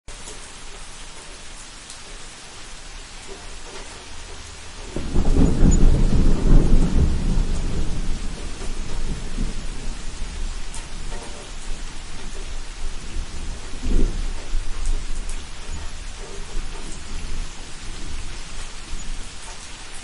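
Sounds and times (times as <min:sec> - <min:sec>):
steady rain: 0:00.0 - 0:20.0
thunder rumbling: 0:03.6 - 0:20.0.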